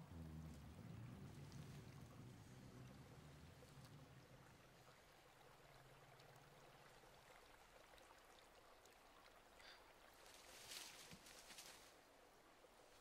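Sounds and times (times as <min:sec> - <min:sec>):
low hum: 0:00.0 - 0:05.8
faint forest ambience: 0:00.0 - 0:13.0
soft rustle: 0:10.2 - 0:12.0.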